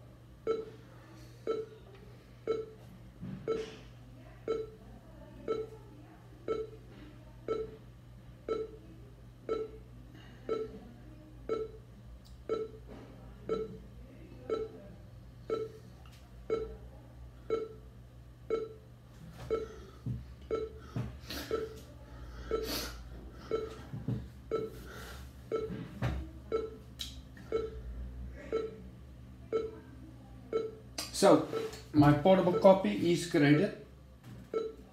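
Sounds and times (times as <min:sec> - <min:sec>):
short busy beep: 0:20.5 - 0:20.8, 0:32.4 - 0:32.8, 0:34.5 - 0:34.8.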